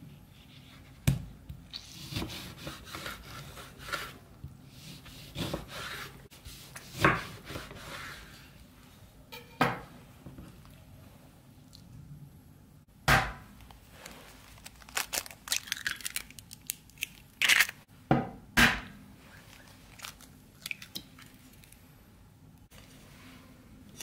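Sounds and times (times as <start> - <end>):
eggshells crackling apart: 14.3 - 17.8.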